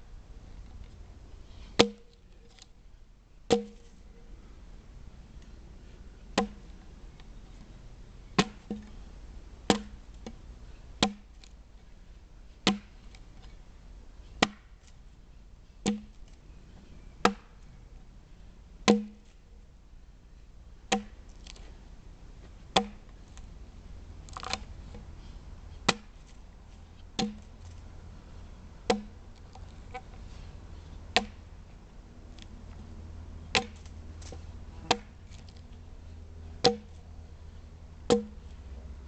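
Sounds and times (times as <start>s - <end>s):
axe chopping log: 1.8s - 2.2s, 3.5s - 3.9s, 6.4s - 6.6s, 8.4s - 8.9s, 9.7s - 10.4s, 11.0s - 11.4s, 12.6s - 13.0s, 14.4s - 14.7s, 15.8s - 16.2s, 17.2s - 17.5s, 18.9s - 19.4s, 20.9s - 21.6s, 22.8s - 23.0s, 24.3s - 24.6s, 25.8s - 26.3s, 27.2s - 27.6s, 28.9s - 29.2s, 31.2s - 31.4s, 33.5s - 35.4s, 36.6s - 37.0s, 38.1s - 38.4s.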